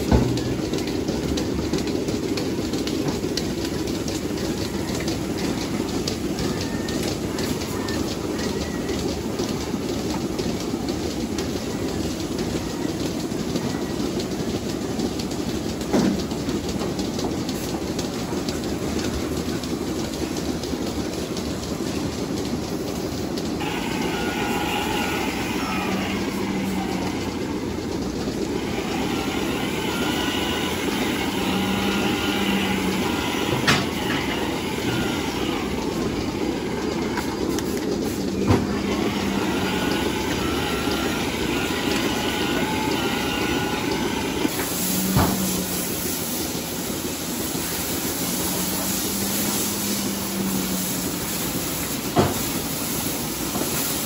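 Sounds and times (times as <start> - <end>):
milking machinery running: 0.0 - 54.0
water spraying from a hose: 44.5 - 54.0.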